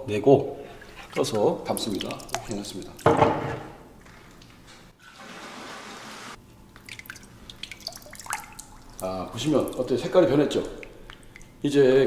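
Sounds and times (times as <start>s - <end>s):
drips and small splashes: 0.4s - 4.7s, 6.4s - 12.0s
liquid swishing in barrel: 0.8s - 3.0s.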